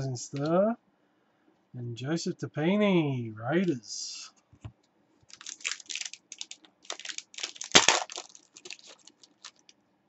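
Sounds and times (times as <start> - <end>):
foil wrapper crinkling and tearing: 5.3 - 9.7.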